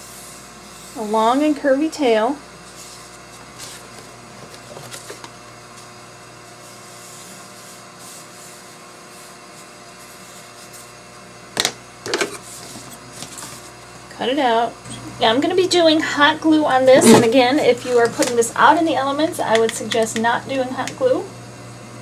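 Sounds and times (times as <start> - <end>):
room hum: 0.0 - 22.0
pencil scratching on foam: 0.1 - 1.4, 6.6 - 11.0.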